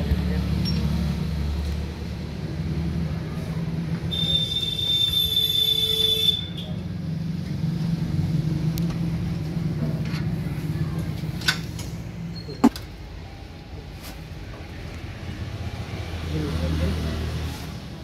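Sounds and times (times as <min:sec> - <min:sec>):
high steady whistle: 0:04.1 - 0:06.6.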